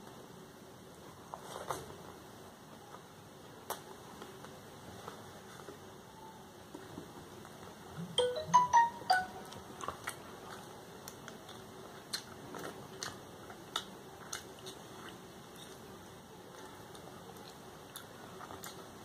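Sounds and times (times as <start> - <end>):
phone notification jingle: 8.2 - 9.5.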